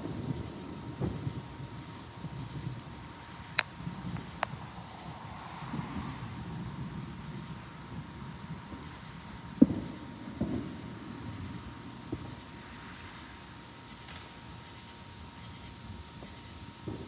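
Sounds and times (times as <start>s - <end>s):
distant thunder: 0.0s - 2.8s, 3.5s - 13.3s
insects trilling: 0.0s - 17.0s
wind rumble: 0.0s - 17.0s.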